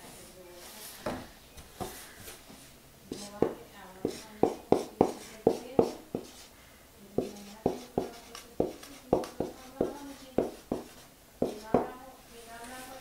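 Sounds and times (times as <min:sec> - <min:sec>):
pen tapping and writing on board: 0:03.1 - 0:06.4, 0:07.2 - 0:12.0.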